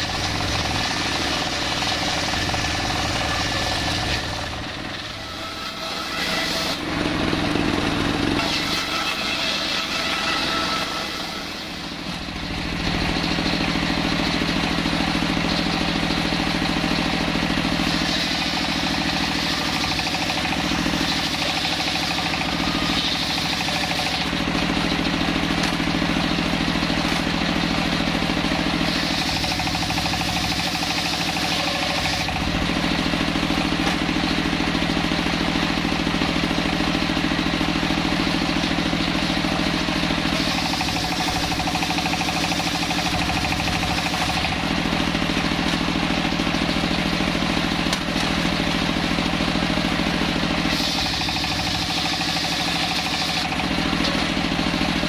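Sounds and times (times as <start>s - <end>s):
saw blade cutting log: 0.0s - 12.6s, 14.9s - 55.0s
engine droning: 0.0s - 55.0s.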